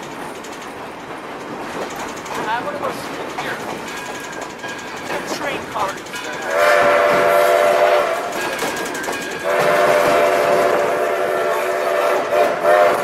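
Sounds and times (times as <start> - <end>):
train rumbling and clacking: 0.0 - 13.0
steam locomotive whistle: 6.5 - 8.5, 9.4 - 13.0.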